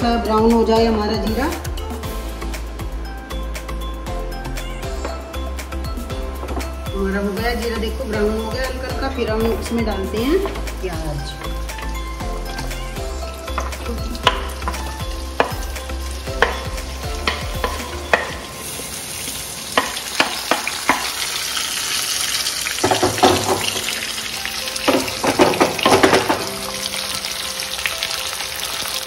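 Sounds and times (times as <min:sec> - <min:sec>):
onions sizzling in oil: 0:07.4 - 0:29.0.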